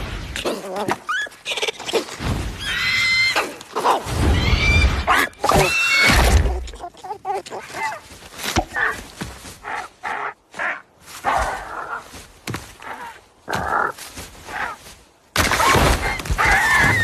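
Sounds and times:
cartoon squawks and yelps: 15.6s - 17.0s.

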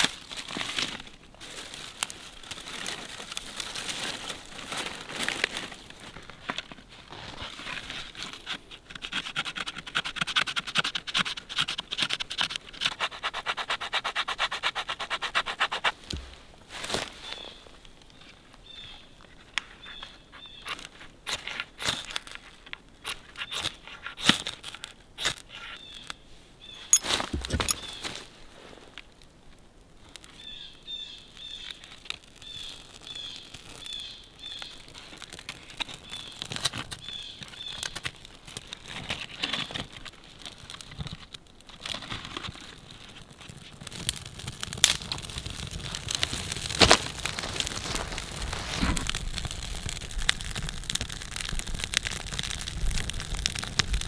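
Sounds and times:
fire crackling: 0.0s - 10.2s, 26.9s - 54.0s
knife scraping bark: 7.4s - 16.3s
small bird chirping: 17.2s - 20.8s, 25.7s - 27.0s, 32.4s - 34.9s.

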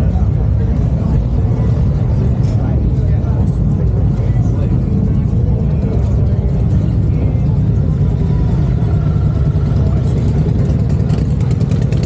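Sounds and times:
motorcycle engine running: 3.4s - 12.0s.

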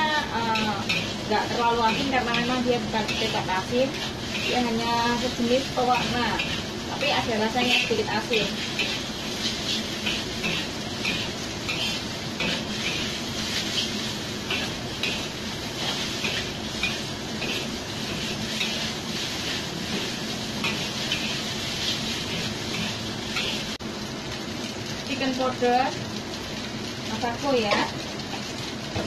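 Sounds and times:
food sizzling: 0.0s - 29.0s
metal spatula scraping a wok: 0.6s - 23.8s.

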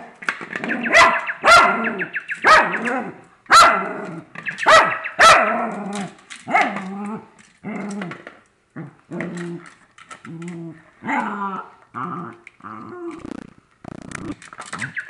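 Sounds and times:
dog barking: 0.8s - 4.0s, 4.6s - 5.7s
dog growling: 8.8s - 13.5s.

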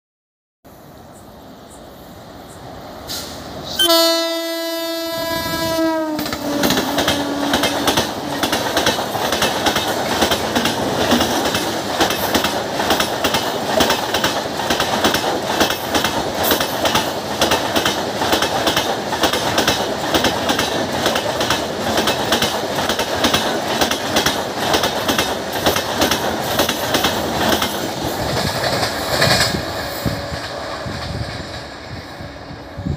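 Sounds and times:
train horn blast: 3.2s - 8.4s
train wheels clickety-clack: 6.0s - 32.9s.

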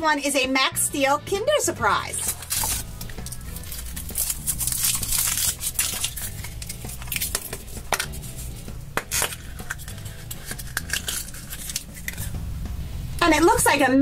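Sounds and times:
foil crinkling: 2.2s - 12.3s.

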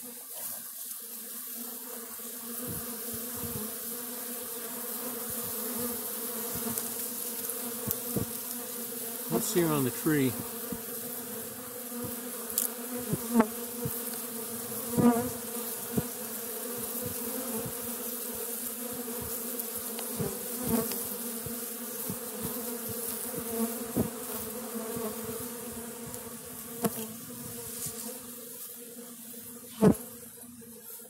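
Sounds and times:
bee swarm humming: 0.0s - 31.0s
single bees buzzing past: 0.0s - 31.0s.

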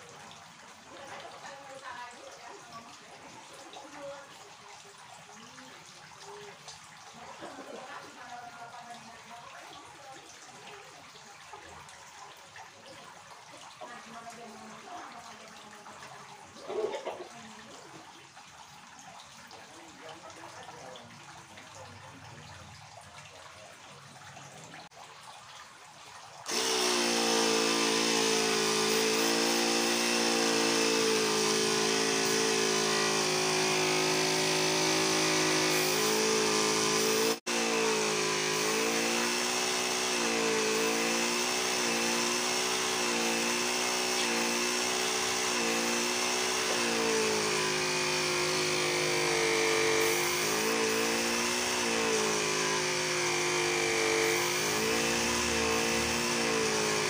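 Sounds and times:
small air compressor running: 26.5s - 57.0s.

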